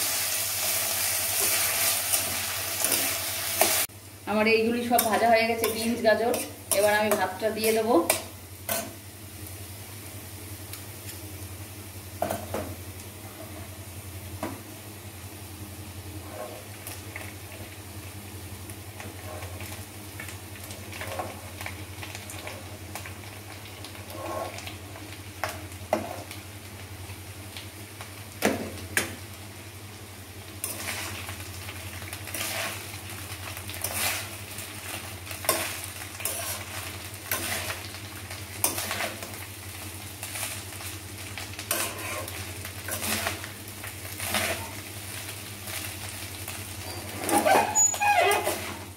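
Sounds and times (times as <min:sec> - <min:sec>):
vegetables sizzling in oil: 0:00.0 - 0:48.9
metal spatula scraping pan: 0:16.2 - 0:16.7, 0:24.0 - 0:24.6, 0:33.8 - 0:34.3, 0:35.5 - 0:37.8, 0:41.7 - 0:43.4, 0:44.2 - 0:44.8, 0:46.9 - 0:48.9.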